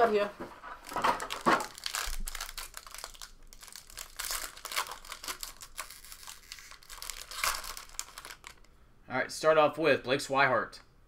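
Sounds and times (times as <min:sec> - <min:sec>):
foil wrapper tearing and crinkling: 0:00.8 - 0:08.7.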